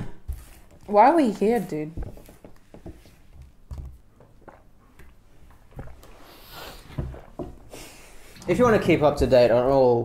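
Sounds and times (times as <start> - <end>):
short hiss: 6.2 - 7.0.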